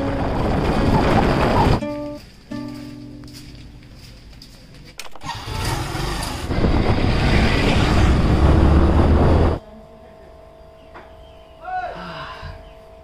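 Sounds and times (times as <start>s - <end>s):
rushing wind noise: 0.0s - 1.8s, 5.4s - 9.6s.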